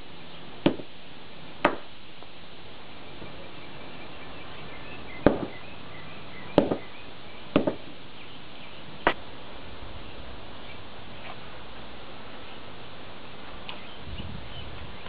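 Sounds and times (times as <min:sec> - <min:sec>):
sledgehammer striking batteries on concrete: 0:00.6 - 0:00.9, 0:01.6 - 0:01.9, 0:05.2 - 0:05.6, 0:06.6 - 0:06.9, 0:07.5 - 0:07.9.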